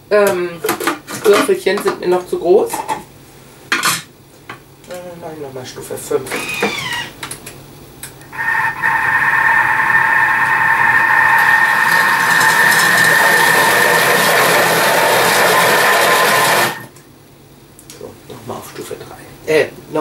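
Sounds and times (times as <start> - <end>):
food processor whining: 8.4 - 16.9.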